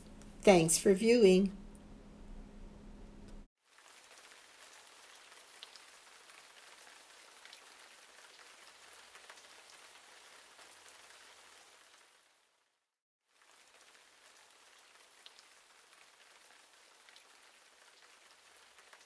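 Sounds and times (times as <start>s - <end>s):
faint steady hiss: 0.0s - 10.0s.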